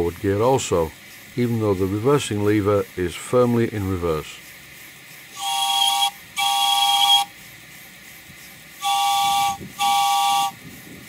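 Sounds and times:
steam chime whistle blasts: 5.3s - 7.4s, 8.8s - 10.6s.

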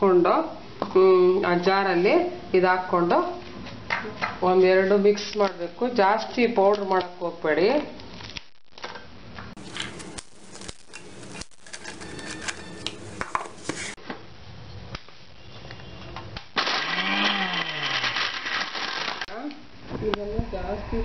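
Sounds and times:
mixer grinder chopping bread: 16.6s - 19.3s.

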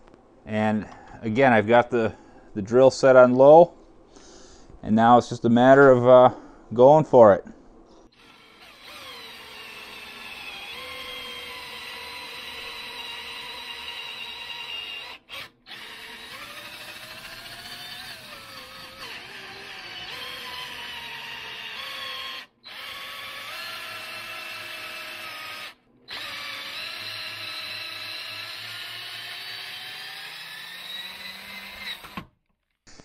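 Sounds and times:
cordless drill motor whine: 8.2s - 32.3s.

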